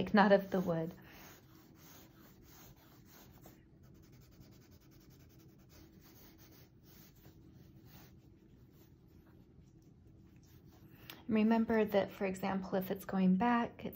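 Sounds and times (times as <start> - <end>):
pencil scratching on paper: 0.0 - 9.1.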